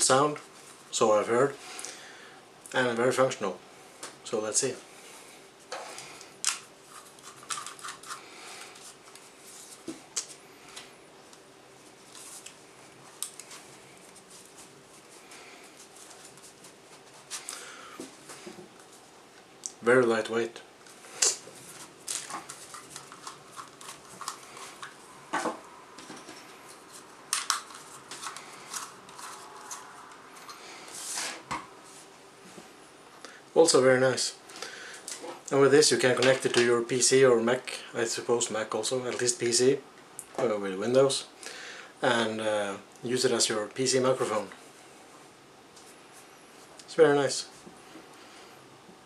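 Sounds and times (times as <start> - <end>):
brushing rustle: 11.7 - 17.5.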